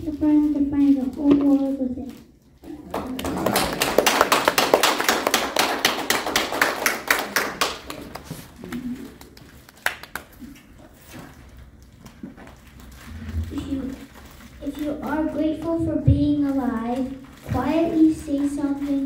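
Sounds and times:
audience applauding: 0:02.8 - 0:10.4.

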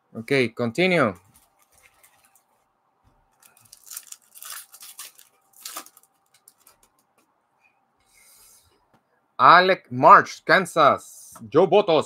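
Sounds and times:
foil wrapper crinkling and tearing: 0:03.3 - 0:07.0.

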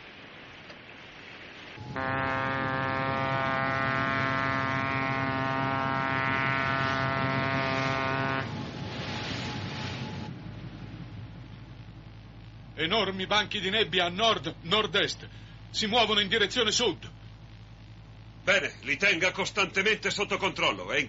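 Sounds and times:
steady hiss: 0:00.0 - 0:21.0
ship's horn low blast: 0:01.8 - 0:10.3.

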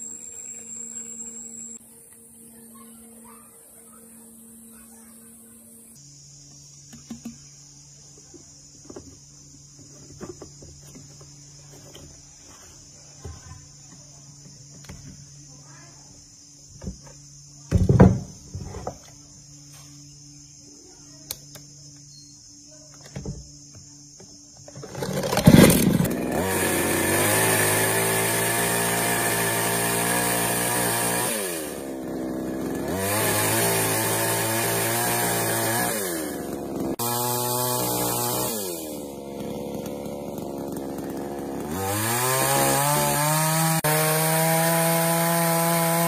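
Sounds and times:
chainsaw running at high revs: 0:24.8 - 0:46.0.

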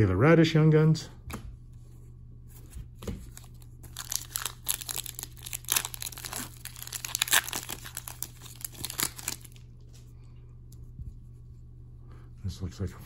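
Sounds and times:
foil wrapper crinkling and tearing: 0:03.3 - 0:09.7.

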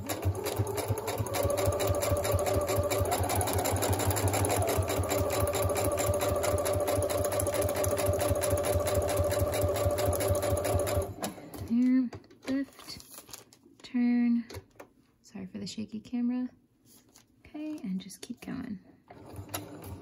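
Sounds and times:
sewing machine stitching: 0:00.0 - 0:11.9, 0:19.1 - 0:20.0.

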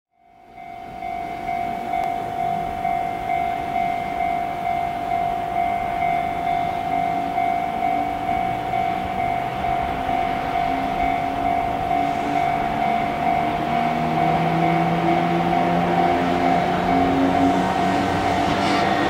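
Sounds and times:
electric locomotive high whine: 0:00.2 - 0:19.0
rising gear whine: 0:07.8 - 0:19.0.

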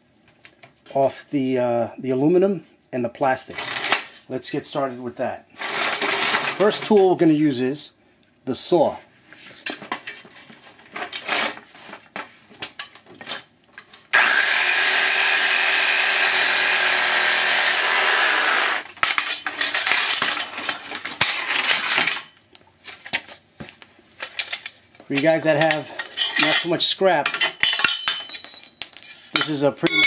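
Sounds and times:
power saw cutting metal: 0:14.1 - 0:20.6.

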